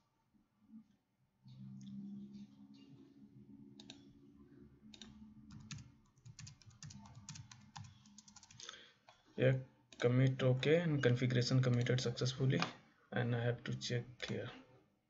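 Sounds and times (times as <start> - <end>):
keyboard typing: 3.7 - 4.2, 4.9 - 9.2, 11.0 - 12.7.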